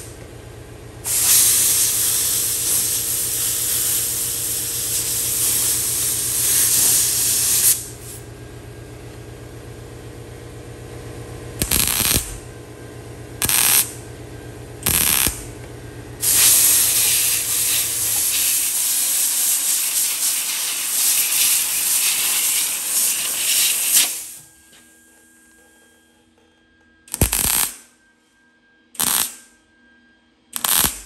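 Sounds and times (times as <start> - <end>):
air blow gun hissing: 1.1 - 8.2, 16.2 - 24.4.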